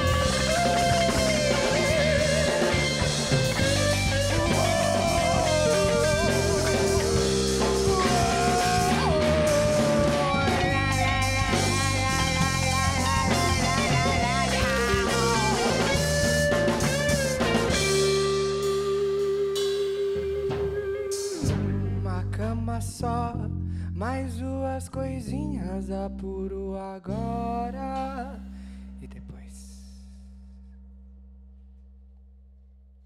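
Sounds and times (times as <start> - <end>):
drum kit: 0.0 - 22.2
electric guitar lead: 0.0 - 22.3
bass guitar: 0.0 - 33.0.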